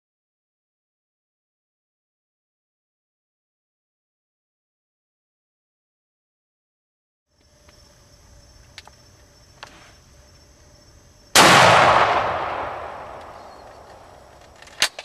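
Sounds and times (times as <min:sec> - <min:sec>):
insects buzzing: 0:07.3 - 0:15.0
loud gunshot with echo: 0:11.4 - 0:14.2.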